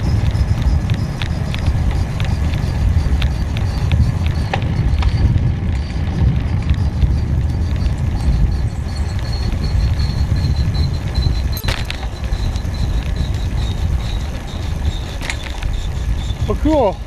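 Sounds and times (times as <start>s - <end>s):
bicycle tyre rumble on pavement: 0.0s - 17.0s
wind buffeting the microphone: 0.0s - 17.0s
light rattling clicks: 11.0s - 16.7s.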